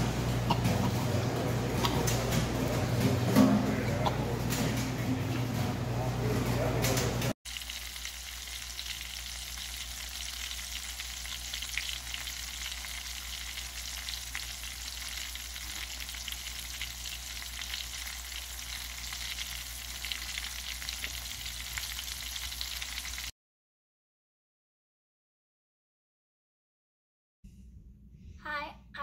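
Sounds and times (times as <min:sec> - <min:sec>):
fish frying in hot oil: 0:07.5 - 0:23.3.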